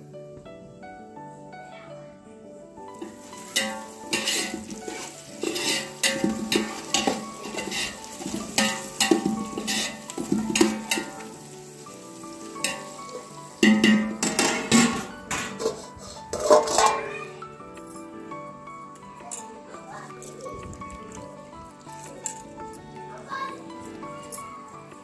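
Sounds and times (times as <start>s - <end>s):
music: 0.0s - 25.0s
onions sizzling: 2.8s - 17.4s
metal ladle scraping a pot: 2.9s - 17.1s.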